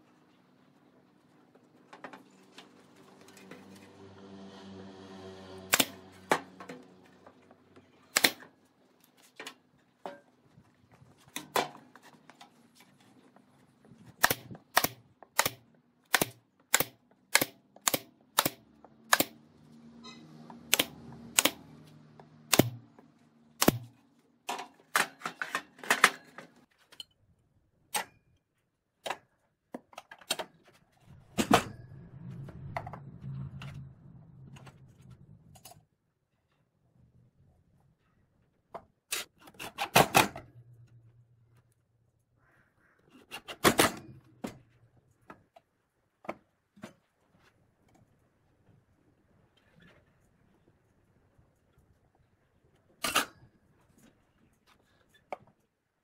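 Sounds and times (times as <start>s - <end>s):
low hum: 31.0s - 35.8s.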